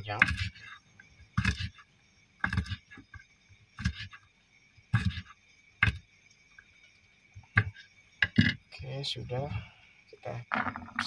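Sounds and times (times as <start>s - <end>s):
knife chopping on wooden board: 0.2s - 0.7s, 1.4s - 1.8s, 2.4s - 3.0s, 5.0s - 6.0s.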